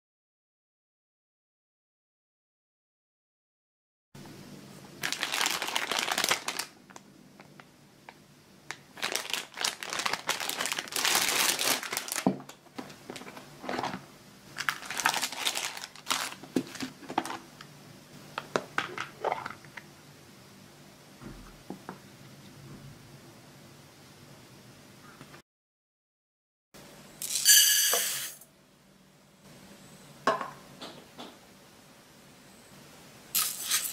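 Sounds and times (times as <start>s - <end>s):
plastic bag crinkling: 5.0s - 7.7s, 8.7s - 17.5s.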